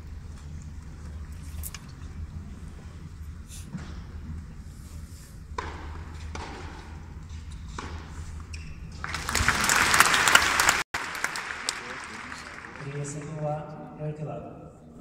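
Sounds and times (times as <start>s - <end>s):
tennis ball hits: 5.6s - 7.0s
crowd applause: 9.0s - 13.4s.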